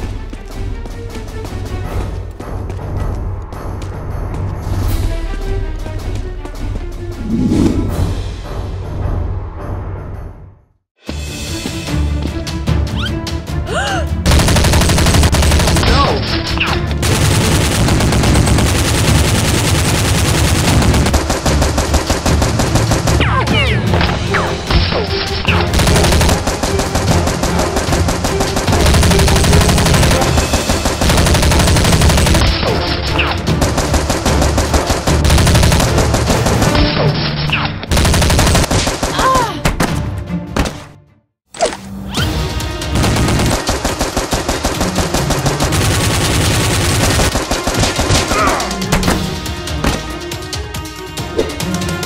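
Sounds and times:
automatic gunfire: 14.3s - 16.2s, 17.0s - 23.3s, 25.6s - 36.9s, 37.9s - 39.4s, 42.9s - 48.6s.

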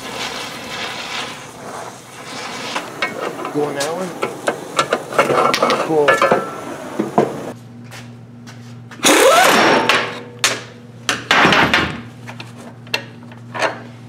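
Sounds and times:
power wrench bursts: 9.0s - 9.8s.

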